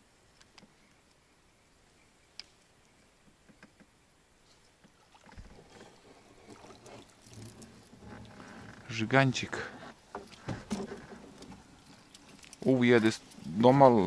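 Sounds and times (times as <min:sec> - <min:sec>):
faint clicks: 0:02.3 - 0:03.9
rustling and light knocks: 0:03.2 - 0:13.5.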